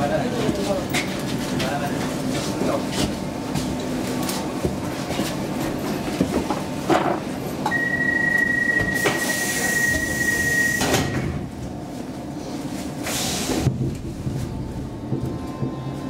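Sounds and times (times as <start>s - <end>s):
train doors sliding shut: 6.2s - 11.6s, 12.8s - 16.0s
high door warning beep: 7.7s - 11.2s
train rumble: 8.7s - 16.0s.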